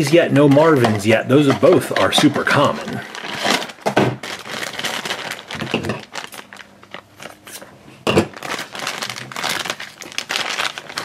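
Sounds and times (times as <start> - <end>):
plastic bag crinkling: 2.3 - 11.0.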